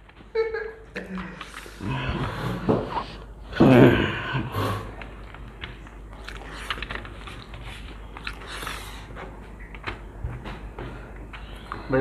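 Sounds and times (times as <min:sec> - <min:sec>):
person chewing with wet clicks: 0:01.2 - 0:01.8, 0:05.0 - 0:10.0.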